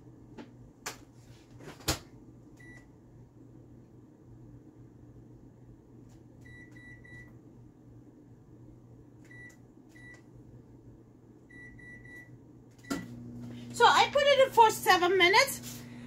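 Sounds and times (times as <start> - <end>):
faint low hum: 0.0 - 16.0
microwave keypad beeping: 2.6 - 2.9, 6.4 - 7.4, 9.3 - 10.3, 11.5 - 13.2.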